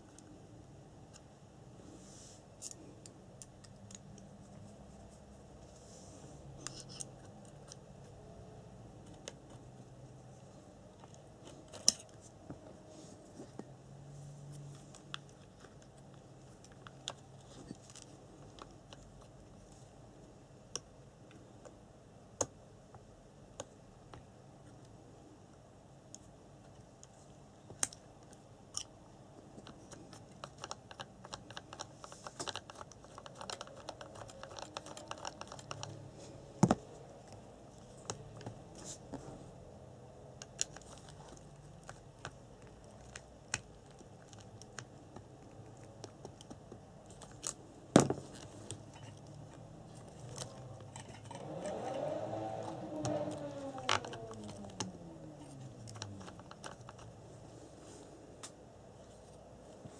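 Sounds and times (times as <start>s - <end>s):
toy car gearbox and motor whirring: 30.2s - 36.1s, 48.7s - 57.1s.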